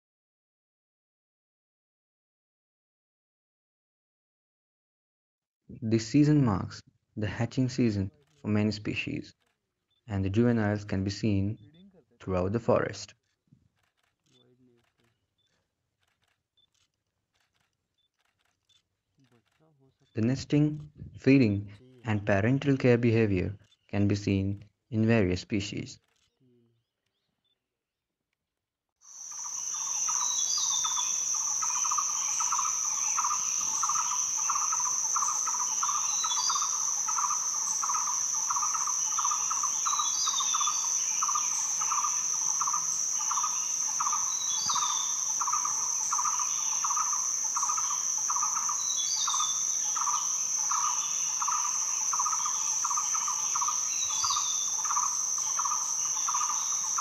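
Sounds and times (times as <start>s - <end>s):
insect high-pitched drone: 29.0s - 57.0s
pulsing insect chirr: 29.0s - 57.0s
bird chirp: 29.2s - 57.0s.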